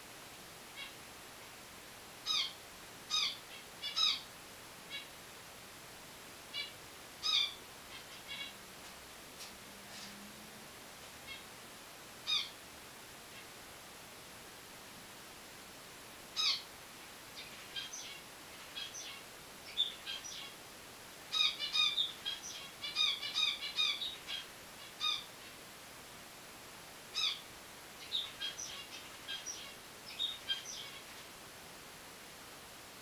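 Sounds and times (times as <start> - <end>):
finches chirping: 2.2 - 4.3, 6.5 - 8.6, 12.2 - 12.6, 16.4 - 16.7, 17.4 - 20.6, 21.3 - 25.6, 27.1 - 31.4.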